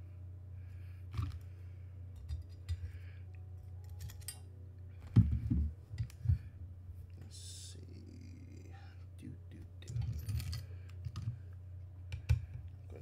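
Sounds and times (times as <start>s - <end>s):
steady low hum: 0.0s - 13.0s
metal parts and tools clattering: 3.8s - 4.5s, 9.9s - 11.3s.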